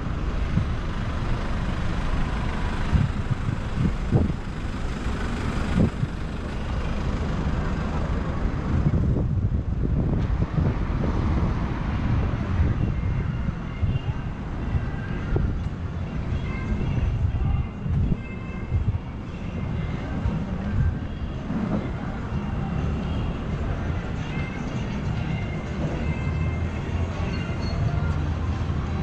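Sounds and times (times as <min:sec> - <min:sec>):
deep low rumble: 0:00.0 - 0:11.2
road traffic noise: 0:00.0 - 0:29.0.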